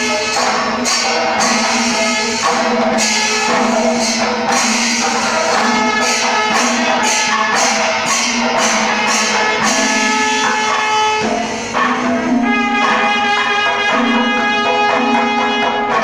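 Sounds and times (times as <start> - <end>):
steady held tone: 0.0 - 12.8
cymbals clashing rhythmically: 0.0 - 16.0
drums: 0.0 - 16.0.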